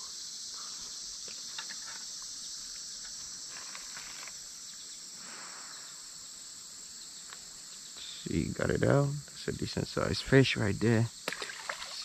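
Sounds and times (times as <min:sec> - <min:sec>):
high-pitched insect chorus: 0:00.0 - 0:12.0
faint clicks and rustles: 0:03.0 - 0:04.4.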